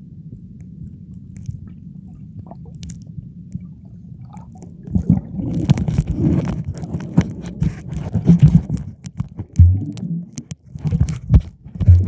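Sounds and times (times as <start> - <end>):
muffled underwater rumble: 0.0 - 12.0
faint clicks: 0.4 - 3.7
knocks and crackling: 4.9 - 12.0.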